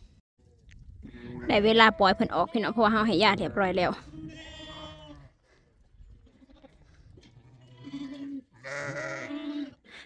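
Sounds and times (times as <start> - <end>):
sheep bleating: 1.2 - 5.4, 6.2 - 9.8.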